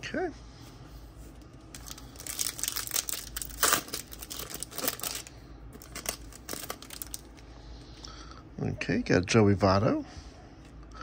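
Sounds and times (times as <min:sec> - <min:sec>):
foil wrapper crinkling and tearing: 0:01.7 - 0:07.4.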